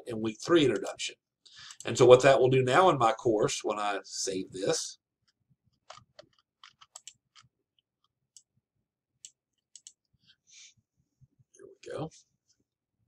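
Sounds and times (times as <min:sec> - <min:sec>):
computer mouse clicks: 0:05.9 - 0:07.5, 0:09.2 - 0:10.0.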